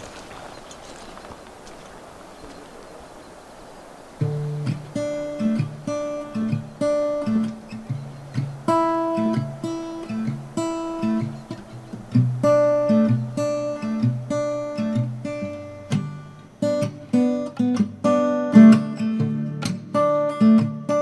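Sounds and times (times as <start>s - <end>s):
acoustic guitar picking melody: 4.2s - 21.0s.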